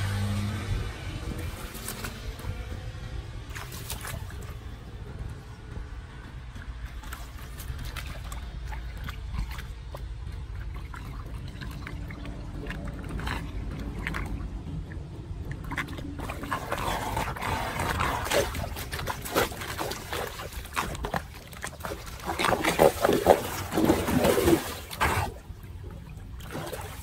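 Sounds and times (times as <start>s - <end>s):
water gurgling down a drain: 7.8s - 27.0s.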